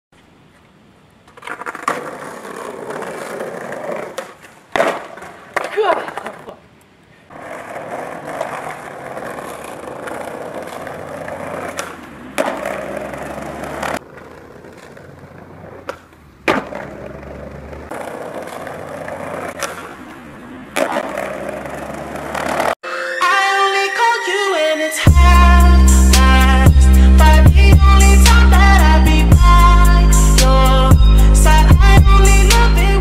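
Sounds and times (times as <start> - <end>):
skateboard wheels rolling on bricks: 0.2 - 22.8
skateboard clacks: 0.5 - 22.8.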